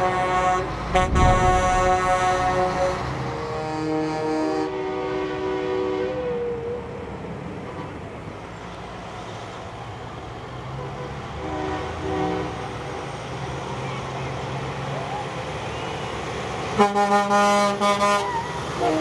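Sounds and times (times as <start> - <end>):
trucks rumbling past: 0.0 - 5.5
truck air horn blasts: 0.0 - 6.6, 10.8 - 12.7, 16.7 - 19.0.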